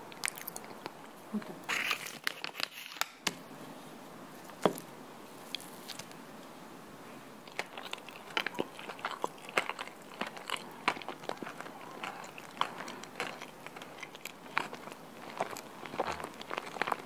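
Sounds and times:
fork crunching into biscuit base: 7.5 - 17.0.

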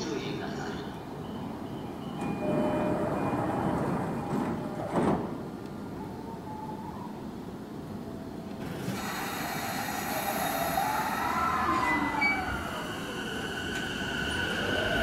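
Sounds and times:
train hiss: 8.6 - 15.0.

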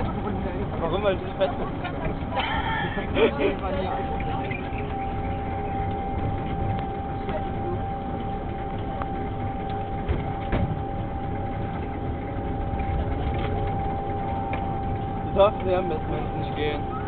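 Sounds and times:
roller coaster car rumbling: 0.0 - 17.0.

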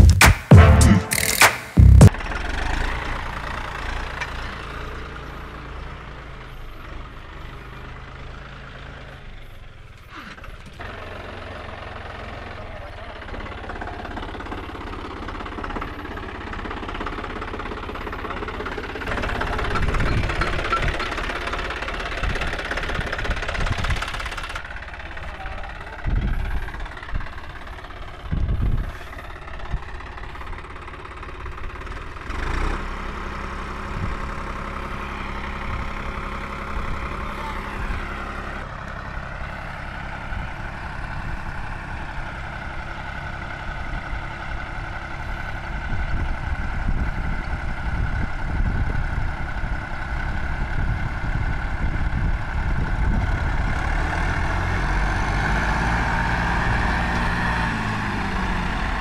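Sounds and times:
diesel tractor engines under load: 0.0 - 59.0.

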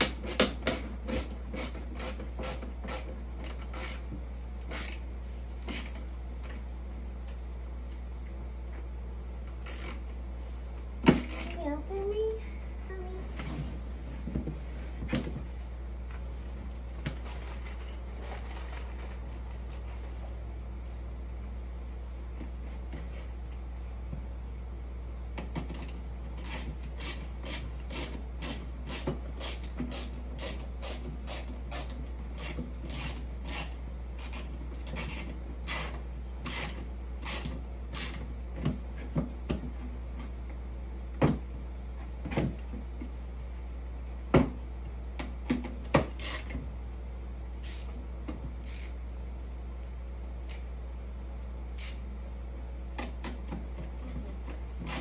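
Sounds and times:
screwdriver driving screws into wood: 0.0 - 4.0.

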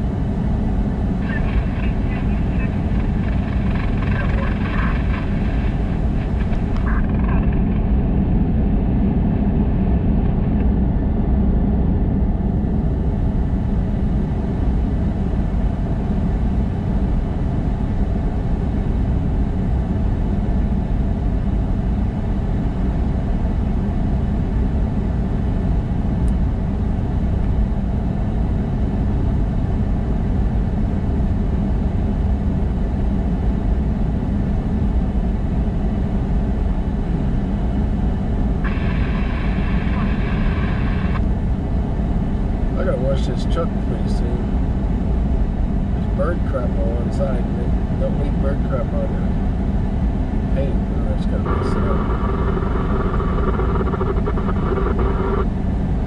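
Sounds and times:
vehicle engine and road rumble: 0.0 - 56.0.

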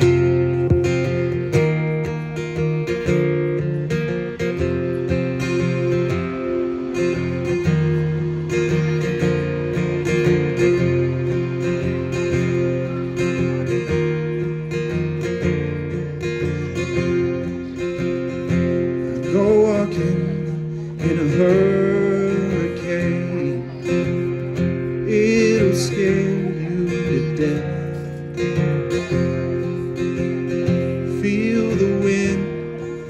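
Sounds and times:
acoustic guitar strumming: 0.0 - 33.0
man singing: 18.5 - 33.0.

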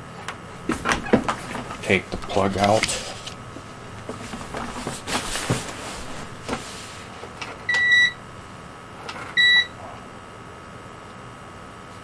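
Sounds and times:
power cord rustling and clicking: 0.2 - 6.6.

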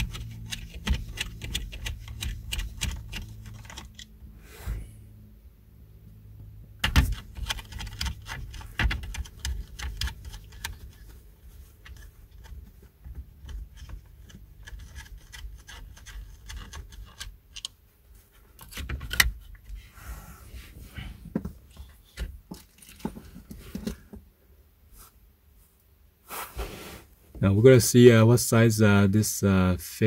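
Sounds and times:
plastic bracket clicking and rattling: 0.0 - 4.1, 6.8 - 17.8, 18.6 - 19.6.

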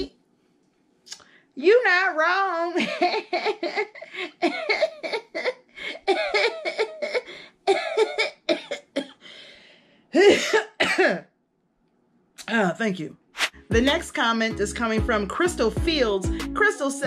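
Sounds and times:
woman laughing: 2.5 - 7.3.

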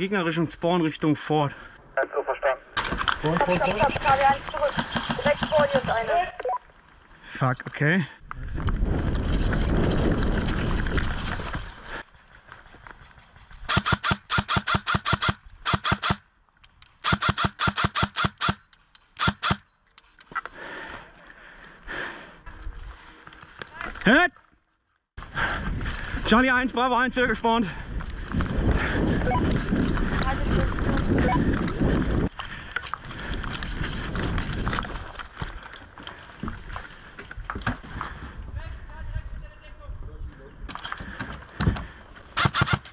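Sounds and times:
airsoft rifle firing rapid shots: 13.7 - 16.2, 17.0 - 18.6, 19.2 - 19.6, 42.4 - 42.9
rustling of gear: 27.9 - 38.5.

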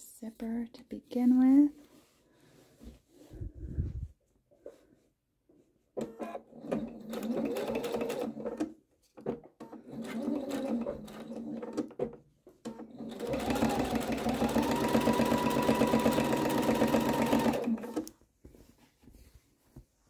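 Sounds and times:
sewing machine stitching: 6.0 - 18.1.

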